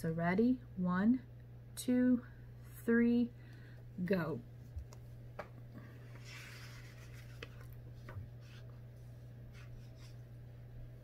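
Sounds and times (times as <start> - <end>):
steady low hum: 0.0 - 11.0
paper rustling: 6.0 - 8.8.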